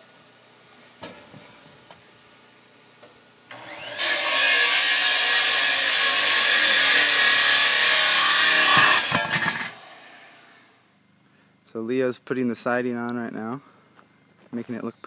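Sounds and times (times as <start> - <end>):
power cutting tool cutting metal: 3.5 - 10.4.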